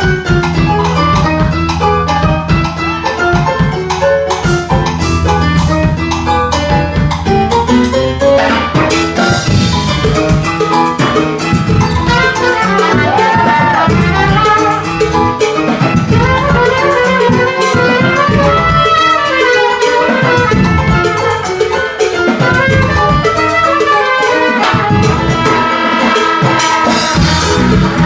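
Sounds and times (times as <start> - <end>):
live band playing mambo: 0.0 - 28.0
trumpet lead: 8.2 - 28.0.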